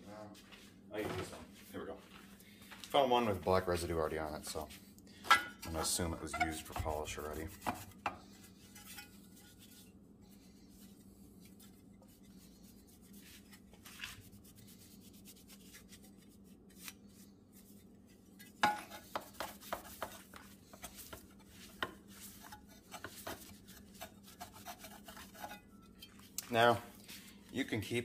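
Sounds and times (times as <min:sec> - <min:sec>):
steady low hum: 0:00.0 - 0:27.8
cloth rag rubbing metal: 0:05.7 - 0:27.7
metal clinks and scrapes: 0:08.6 - 0:09.8.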